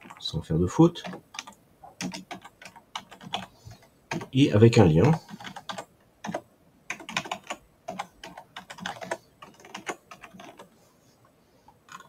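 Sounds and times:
keyboard typing: 1.0 - 4.4, 5.0 - 10.7.

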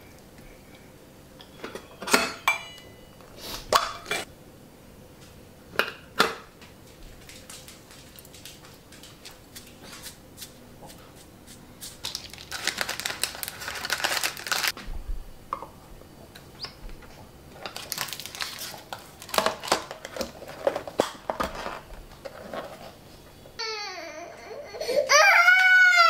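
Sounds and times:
plastic wrapper crinkling: 12.0 - 14.8, 17.6 - 22.8.

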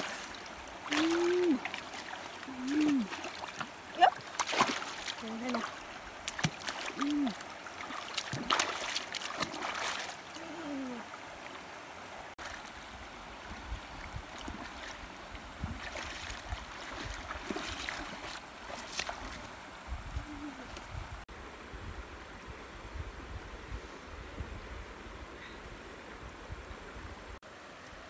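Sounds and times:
fish splashing in water: 0.0 - 10.4
water sloshing and splashing: 0.0 - 20.8.

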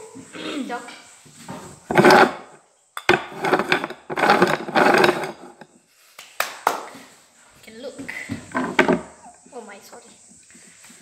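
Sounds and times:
objects rubbing and scraping: 1.0 - 5.8, 8.3 - 9.4.

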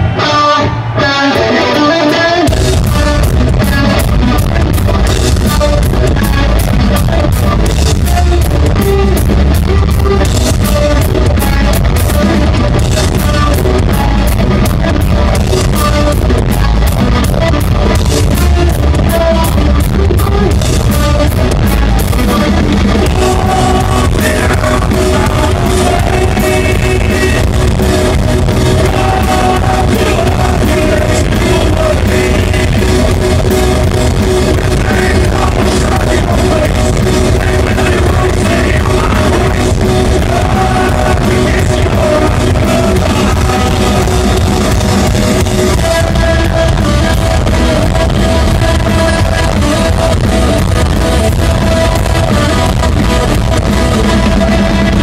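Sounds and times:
metal band playing live: 0.0 - 55.0
person singing: 18.2 - 55.0.

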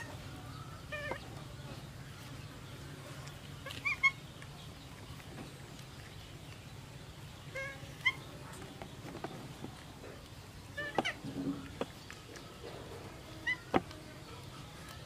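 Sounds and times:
baby monkey high-pitched calls: 0.0 - 1.4, 3.6 - 4.3, 7.5 - 8.4, 10.7 - 11.3, 13.3 - 13.8.

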